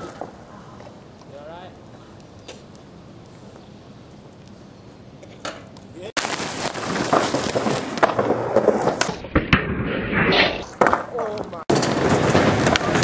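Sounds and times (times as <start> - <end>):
skateboard wheels rolling on concrete: 0.0 - 13.0
skateboard clacks: 10.8 - 13.0.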